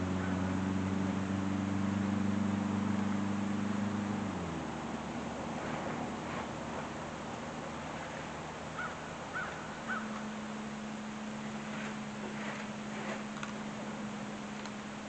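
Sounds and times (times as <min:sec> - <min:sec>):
steady low hum: 0:00.0 - 0:15.0
crow cawing: 0:08.8 - 0:10.2.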